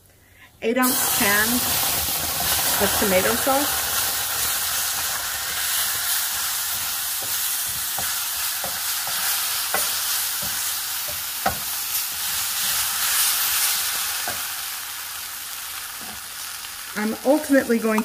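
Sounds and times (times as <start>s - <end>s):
sauce sizzling in a skillet: 0.8s - 18.0s
wooden spoon knocking and scraping pan: 5.8s - 12.9s.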